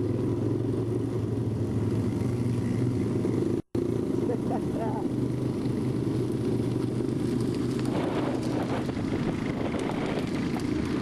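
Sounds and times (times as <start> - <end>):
atv engine running: 0.0 - 11.0
wind buffeting microphone: 5.0 - 11.0
burning sugarcane crackling: 5.1 - 11.0.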